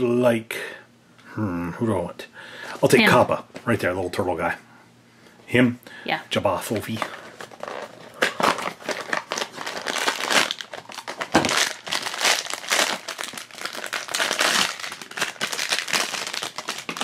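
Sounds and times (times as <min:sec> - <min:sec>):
foil wrapper crinkling: 0:06.9 - 0:17.0.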